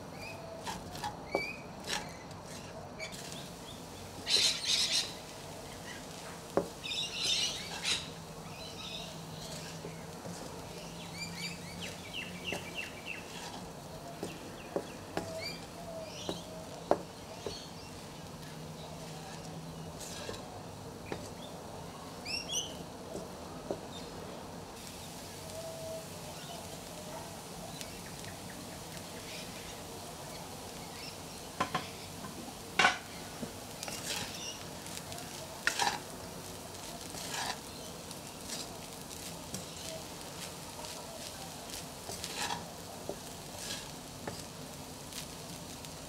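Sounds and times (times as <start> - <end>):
rice sizzling in a pan: 0.0 - 46.0
spatula scraping and knocking pan: 0.6 - 3.5, 4.1 - 20.5, 21.1 - 21.5, 31.6 - 36.2, 36.8 - 45.3.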